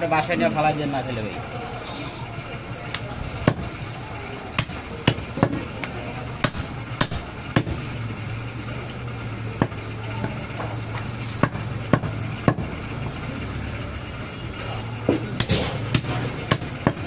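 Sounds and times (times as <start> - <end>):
steady low hum: 0.0 - 17.0
blade chopping meat: 4.6 - 7.9, 15.1 - 17.0.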